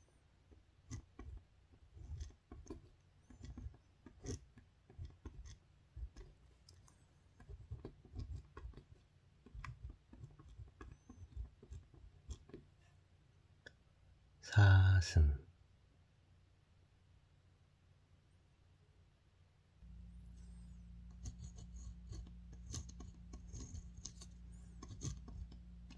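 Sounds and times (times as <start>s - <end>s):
pen scratching on paper: 0.5s - 12.9s, 20.3s - 25.9s.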